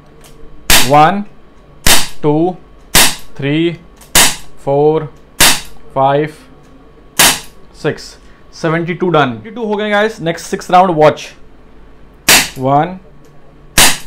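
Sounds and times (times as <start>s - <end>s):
air pistol shots: 0.7s - 1.0s, 1.8s - 2.2s, 2.9s - 3.3s, 4.1s - 4.5s, 5.4s - 5.8s, 7.2s - 7.6s, 12.2s - 12.6s, 13.8s - 14.0s.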